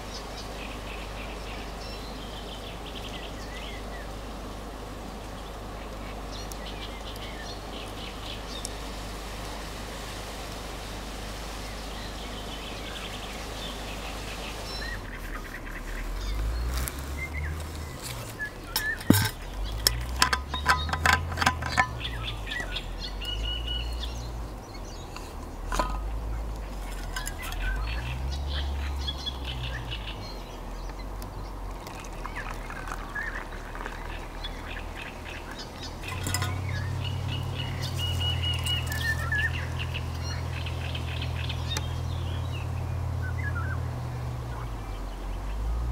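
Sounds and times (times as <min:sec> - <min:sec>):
small birds chirping: 0:00.0 - 0:09.8, 0:10.7 - 0:45.9
handling clicks and knocks: 0:18.0 - 0:22.8, 0:25.2 - 0:27.8, 0:36.0 - 0:36.9.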